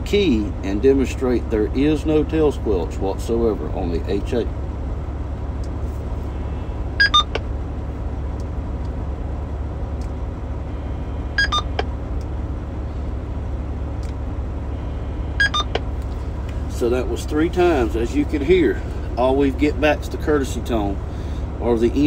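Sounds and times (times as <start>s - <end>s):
steady low rumble: 0.0s - 22.0s
falling two-note radio beep: 10.8s - 11.8s, 15.4s - 15.8s.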